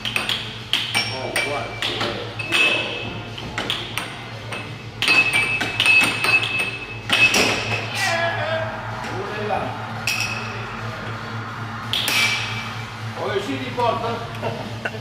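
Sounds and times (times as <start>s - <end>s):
air hockey puck clacking: 0.0s - 2.8s, 3.4s - 7.8s.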